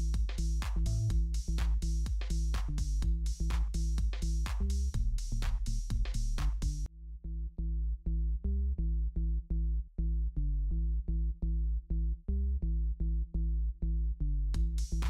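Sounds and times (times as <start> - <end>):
electronic drum beat: 0.0 - 6.9, 14.6 - 15.0
pulsing electronic bass line: 0.0 - 15.0.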